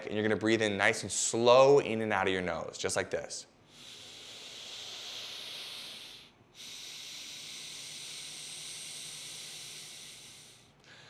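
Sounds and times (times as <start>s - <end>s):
man breathing deeply through nose: 3.6s - 11.0s.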